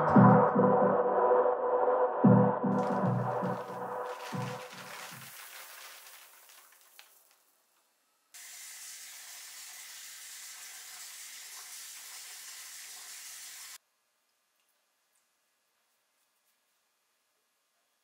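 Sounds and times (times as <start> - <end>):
faucet water running into bowl: 8.4 - 13.8.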